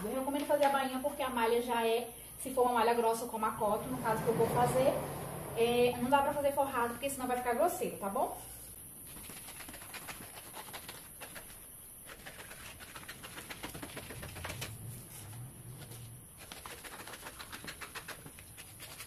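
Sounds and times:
scissors snipping paper: 16.4 - 19.0.

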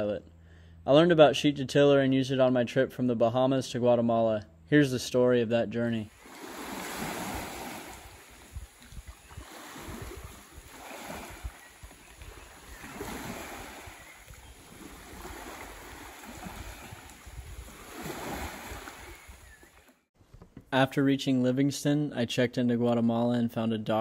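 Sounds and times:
waves washing onto gravel shore: 6.1 - 8.5, 9.4 - 19.4
wind rumbling on microphone: 6.2 - 19.8.

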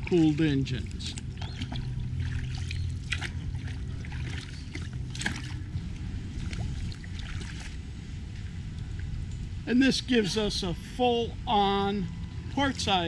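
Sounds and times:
water lapping against hulls: 0.0 - 9.1
low steady hum: 0.0 - 13.0.

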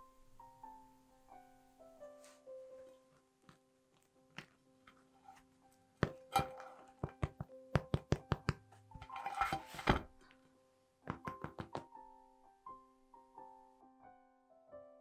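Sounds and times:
soft piano music: 0.0 - 15.0
knocks on bread crust: 7.0 - 8.6, 11.1 - 11.9
loaf scraping on glass plate: 9.0 - 10.1.

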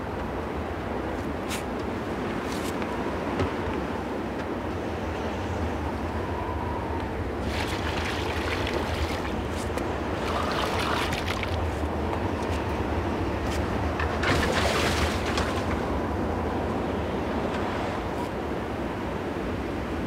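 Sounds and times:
strong wind blowing: 3.0 - 18.9
water splashing into metal pails: 7.4 - 11.8, 14.2 - 15.9.

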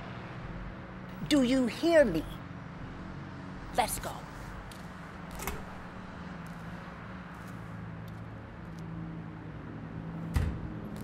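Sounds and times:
door shutting with a bang: 10.3 - 10.7.

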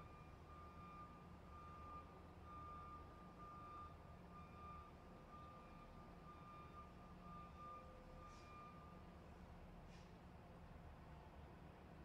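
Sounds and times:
truck reversing alarm beeping: 0.1 - 9.0.

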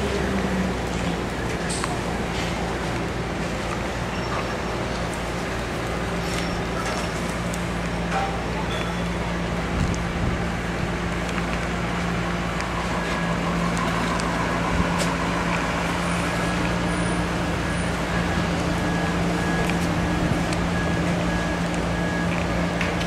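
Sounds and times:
mechanical drone: 7.9 - 23.0.

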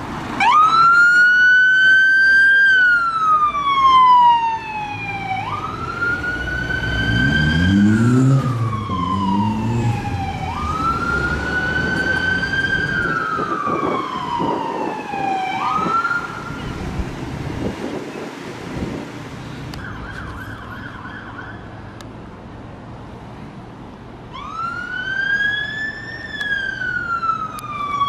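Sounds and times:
fire engine siren wailing: 0.4 - 16.9, 19.7 - 21.8, 24.3 - 28.0
engine revving: 5.5 - 13.1.

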